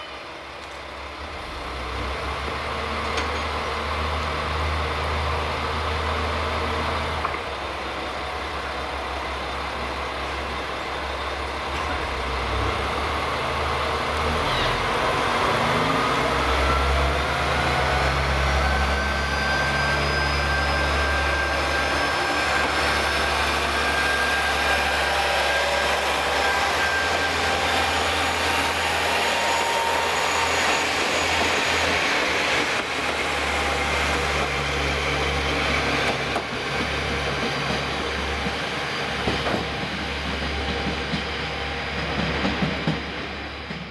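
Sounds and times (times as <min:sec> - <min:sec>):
diesel train engines running: 0:00.1 - 0:43.9
rising engine whine: 0:11.1 - 0:37.0.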